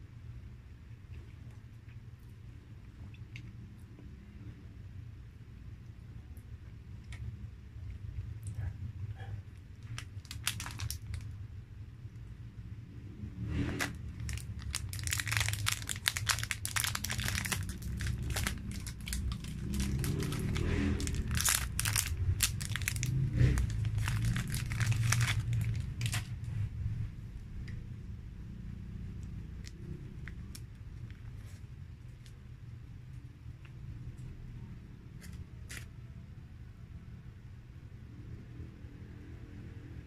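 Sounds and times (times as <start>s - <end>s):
steady low hum: 0.0s - 40.0s
plastic wrapper crinkling: 9.8s - 11.4s, 13.8s - 26.5s.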